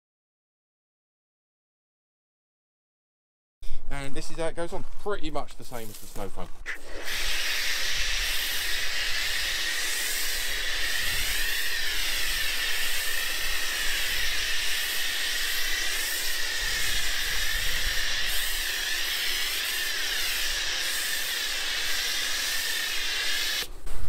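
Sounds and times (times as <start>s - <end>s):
foam lance spraying hiss: 5.7s - 23.7s.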